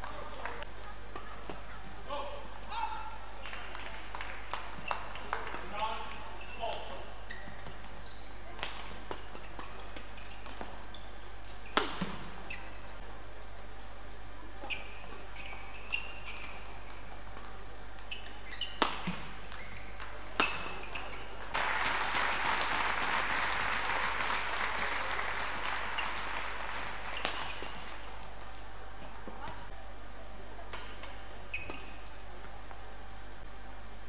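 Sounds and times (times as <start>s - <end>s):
court shoes squeaking: 3.4s - 13.1s, 13.7s - 21.6s, 24.0s - 29.8s, 30.6s - 33.2s
rackets hitting shuttlecock: 18.7s - 21.2s, 26.9s - 28.5s
crowd applause: 21.6s - 27.1s.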